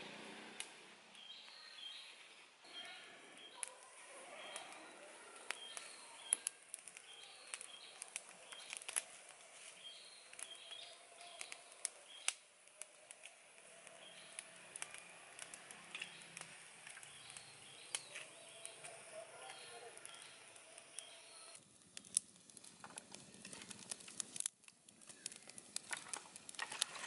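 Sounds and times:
birds chirping: 0.1s - 21.6s
twig fire crackling and popping: 0.6s - 27.0s.

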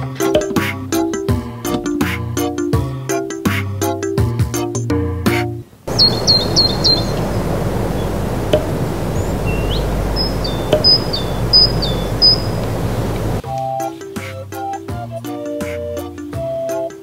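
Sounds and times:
faint ticks: 5.9s - 13.4s
steady rushing noise: 5.9s - 13.4s.

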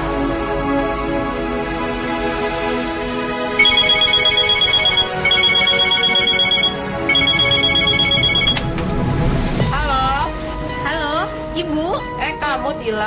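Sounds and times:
soft background music: 0.0s - 13.0s
telephone electronic trill ringing: 3.6s - 8.7s.

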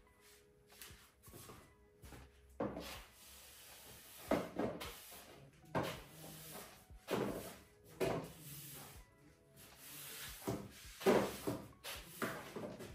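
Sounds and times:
broom and dustpan scraping floor: 2.6s - 9.0s, 9.6s - 12.9s.

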